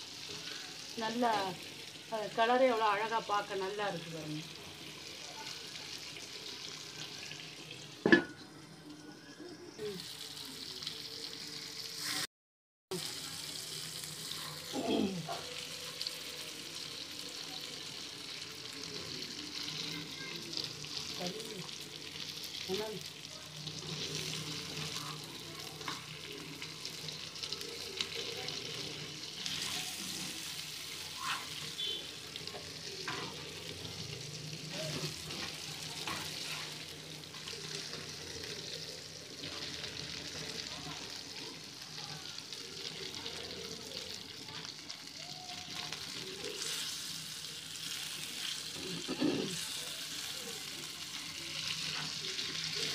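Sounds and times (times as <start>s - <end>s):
fish sizzling in oil: 0.0s - 12.3s, 12.9s - 52.9s
steel spatula scraping pan: 31.1s - 32.0s.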